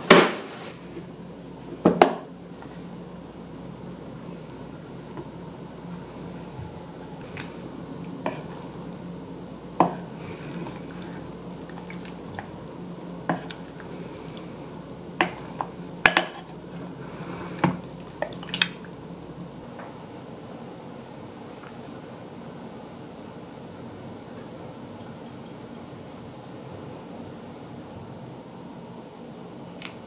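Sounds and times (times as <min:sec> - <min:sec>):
steady low hum: 0:00.0 - 0:30.0
wooden spoon knocking and scraping pot: 0:08.2 - 0:08.6, 0:09.8 - 0:11.2, 0:15.2 - 0:18.3.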